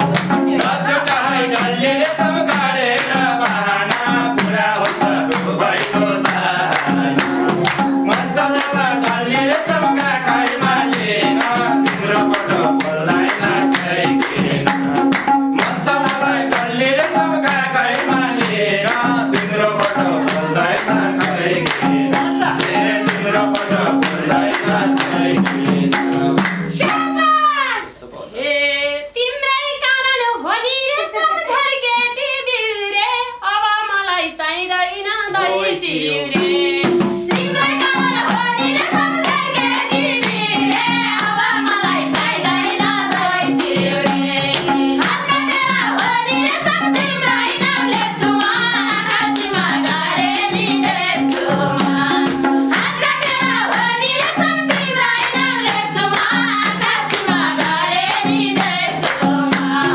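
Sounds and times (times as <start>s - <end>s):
hand clapping: 0.0s - 27.1s, 37.2s - 59.9s
group singing: 0.0s - 27.2s, 35.2s - 59.9s
hand drums: 0.0s - 27.5s, 36.3s - 59.9s
woman singing: 28.4s - 59.9s.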